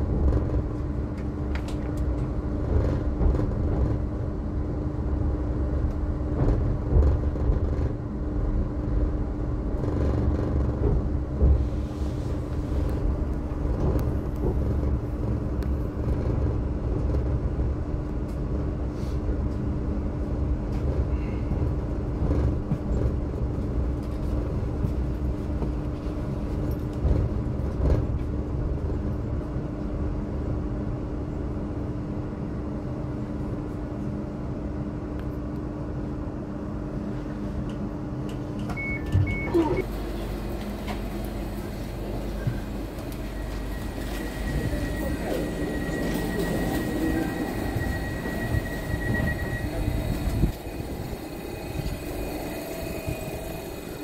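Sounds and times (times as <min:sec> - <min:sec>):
train wheels rumbling on rail: 0:00.0 - 0:54.0.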